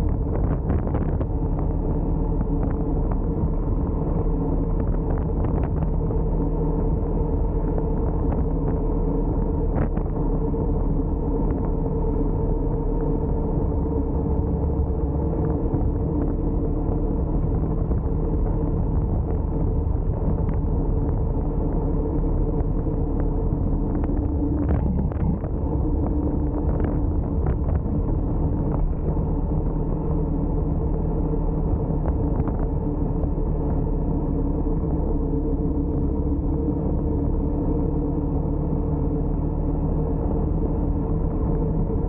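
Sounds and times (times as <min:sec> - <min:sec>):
wind and road rumble: 0:00.0 - 0:42.0.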